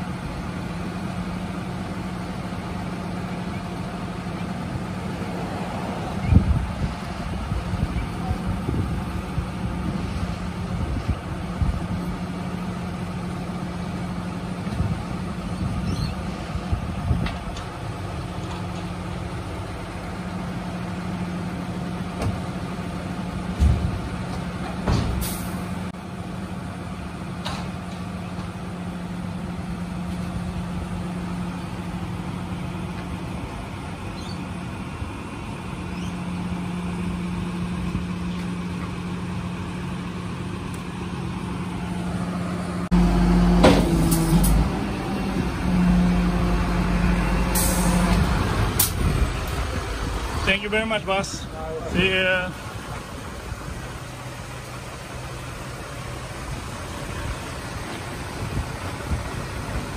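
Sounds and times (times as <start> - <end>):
truck engine running: 0.0 - 59.9
knocks and clunks: 23.5 - 25.2.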